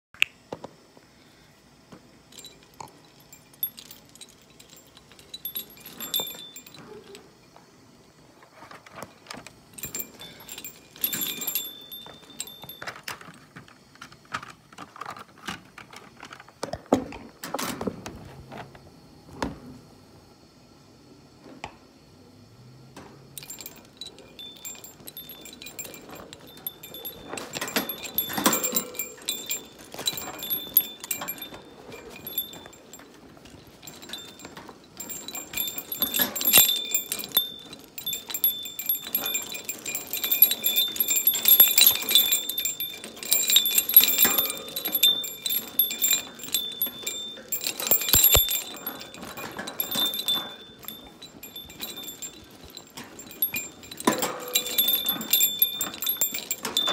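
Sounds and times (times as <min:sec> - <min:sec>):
cage toys jangling and clinking: 0:02.3 - 0:07.4, 0:08.7 - 0:13.5, 0:23.3 - 0:56.9
chain rattling: 0:02.3 - 0:07.4, 0:09.3 - 0:13.4, 0:23.3 - 0:56.9
bell ringing: 0:03.3 - 0:07.1, 0:23.4 - 0:56.9.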